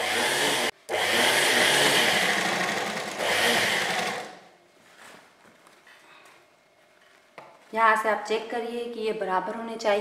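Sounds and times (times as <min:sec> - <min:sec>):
electric sewing machine stitching: 0:00.0 - 0:04.4.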